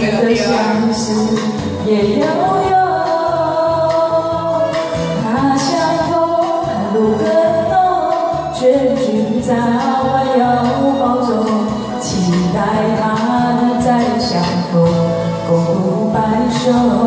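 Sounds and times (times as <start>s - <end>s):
karaoke backing track with beat: 0.0s - 17.0s
woman singing: 0.0s - 17.0s.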